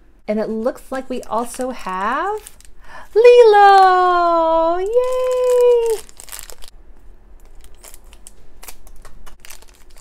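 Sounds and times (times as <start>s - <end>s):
plastic wrapper crinkling: 1.2s - 3.1s, 4.2s - 6.8s, 7.4s - 10.0s.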